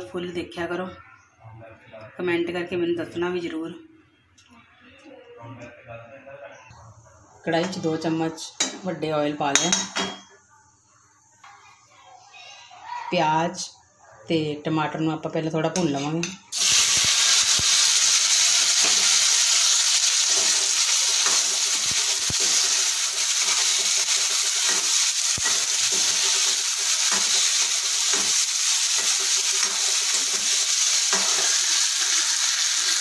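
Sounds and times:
onions sizzling in hot oil: 0:16.5 - 0:33.0.

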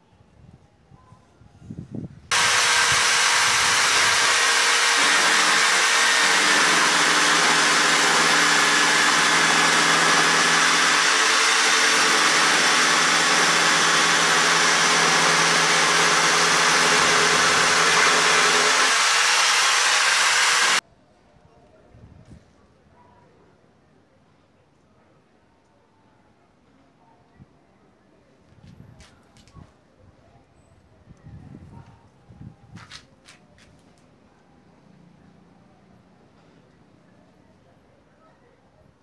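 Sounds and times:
electric drill boring wood: 0:02.3 - 0:20.8.

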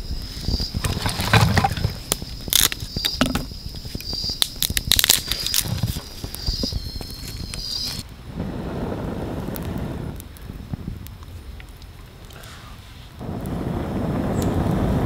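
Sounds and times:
dry leaves and twigs crackling: 0:00.2 - 0:08.1.

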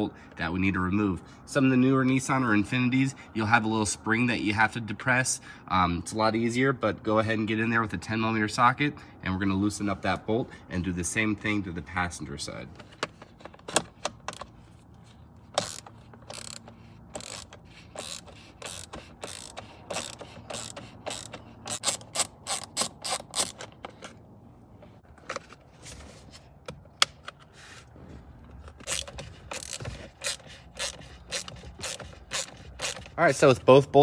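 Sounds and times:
socket ratchet clicking: 0:15.6 - 0:24.2, 0:28.8 - 0:33.2.

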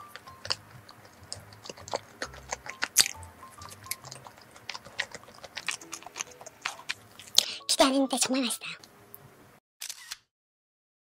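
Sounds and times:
chewing with wet mouth clicks: 0:00.0 - 0:07.5
soft background music: 0:00.0 - 0:08.9.

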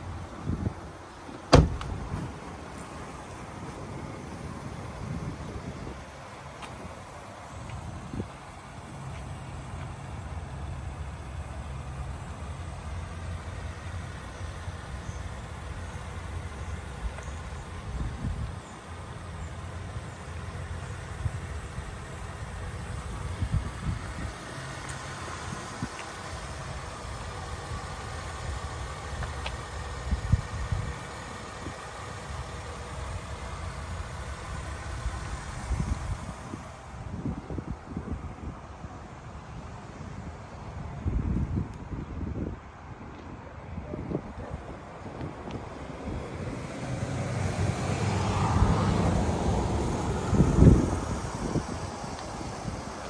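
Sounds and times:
car engine idling: 0:00.0 - 0:41.4, 0:43.4 - 0:53.0
thump: 0:01.5 - 0:02.3
wind buffeting microphone: 0:03.4 - 0:08.5, 0:35.1 - 0:53.0.

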